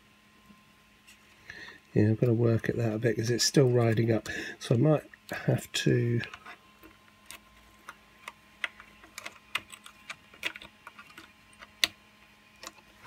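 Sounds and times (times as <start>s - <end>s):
plastic parts clicking and tapping: 6.2s - 12.0s, 12.6s - 12.9s.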